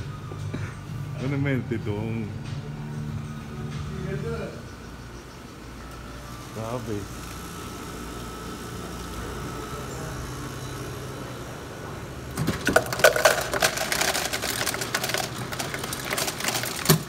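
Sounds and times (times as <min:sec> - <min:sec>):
steady low hum: 0:00.0 - 0:16.9
ice cubes clattering into cup: 0:12.4 - 0:17.0.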